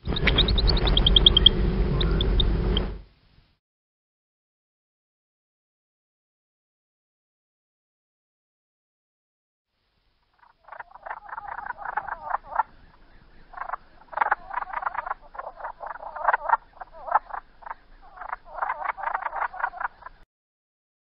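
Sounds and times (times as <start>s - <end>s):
frog rattling croaks: 0.0s - 2.6s, 10.4s - 20.2s.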